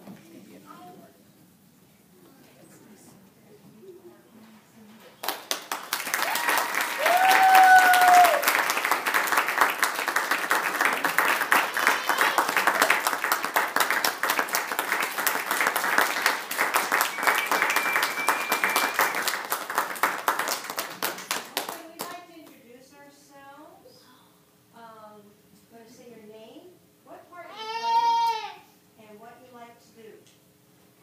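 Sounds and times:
audience applauding: 5.2s - 22.1s
person whooping cheer: 6.1s - 8.6s.

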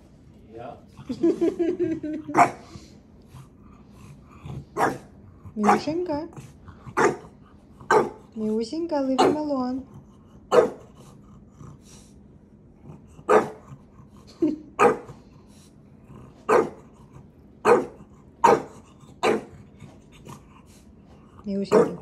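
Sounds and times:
dog barking: 2.3s - 2.6s, 4.8s - 6.0s, 6.9s - 8.2s, 9.2s - 9.5s, 10.5s - 10.9s, 13.2s - 13.7s, 14.8s - 15.2s, 16.5s - 16.8s, 17.6s - 19.5s, 21.7s - 22.0s.

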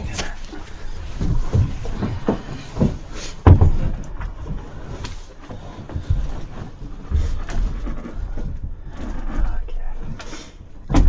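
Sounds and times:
heavy battery knocks and thumps: 1.1s - 9.1s, 10.8s - 11.0s.

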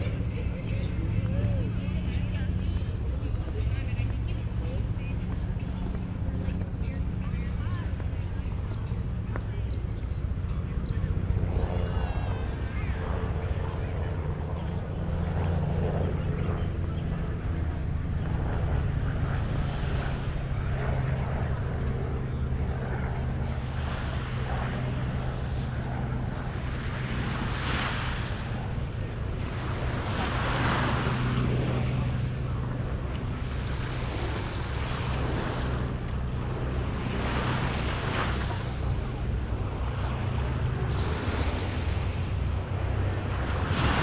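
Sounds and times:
wind rumble on microphone: 0.0s - 44.0s
waves washing up a beach: 17.4s - 21.1s, 23.2s - 44.0s.

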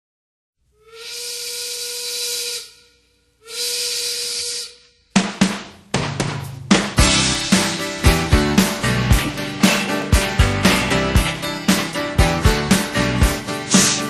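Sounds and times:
hissing blasts with whistle tone: 0.8s - 4.8s, 13.6s - 14.0s
beat with sharp drum hits: 5.2s - 14.0s.

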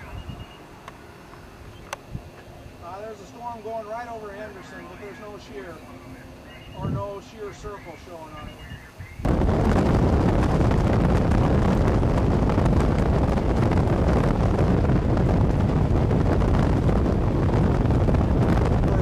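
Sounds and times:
wind buffeting microphone: 6.4s - 19.0s.

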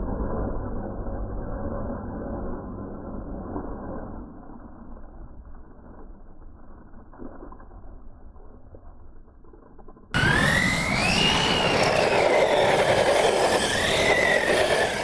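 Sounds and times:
rc truck motor and gear whine: 10.2s - 15.0s.

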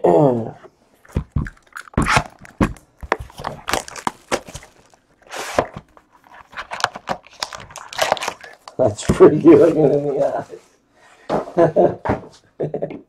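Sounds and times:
cardboard box scraping slide: 5.3s - 5.8s.

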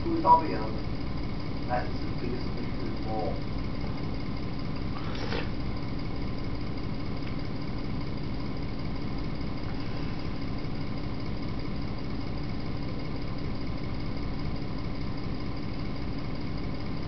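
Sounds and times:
mains hum: 0.0s - 17.0s.

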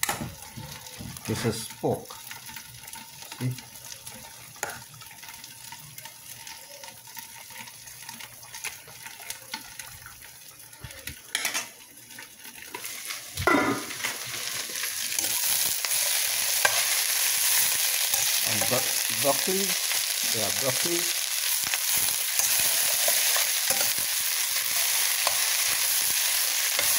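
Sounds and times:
meat sizzling in a pan: 0.0s - 26.9s
vegetables frying in oil: 0.0s - 26.9s.

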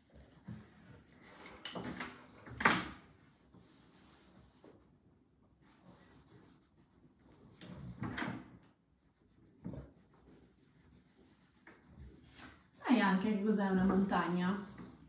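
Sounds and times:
marker scratching on paper: 5.6s - 7.7s, 9.0s - 12.8s, 13.8s - 15.0s.

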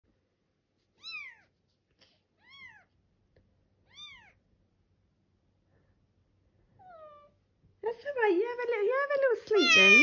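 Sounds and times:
kittens mewing: 9.5s - 10.0s.

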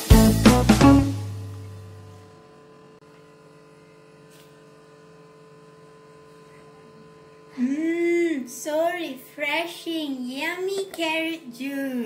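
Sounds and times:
guitar chord ringing: 0.0s - 2.6s
electrical mains hum: 0.1s - 12.0s
woman's voice: 7.6s - 12.0s.

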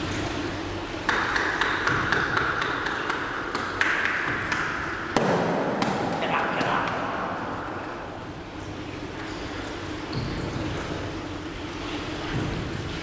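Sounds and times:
wet taps echoing off marble: 1.0s - 7.9s.

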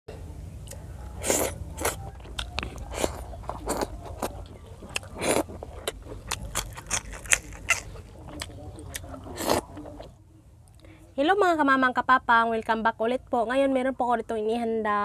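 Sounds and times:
chewing and lip smacks: 0.6s - 10.9s.

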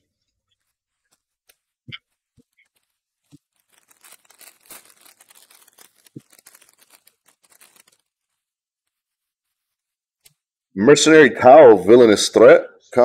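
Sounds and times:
foil wrapper tearing and crinkling: 1.0s - 9.1s.

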